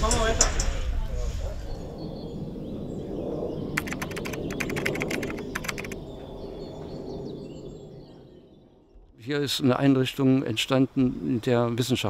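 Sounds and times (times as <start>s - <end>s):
sharp typing clicks: 3.8s - 6.0s.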